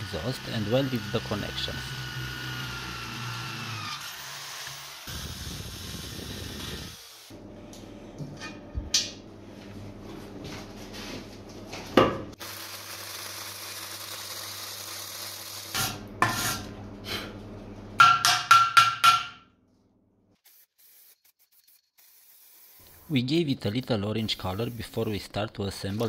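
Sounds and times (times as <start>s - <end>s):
arc welding hum and crackle: 0.0s - 7.4s, 12.4s - 16.7s, 20.4s - 26.0s.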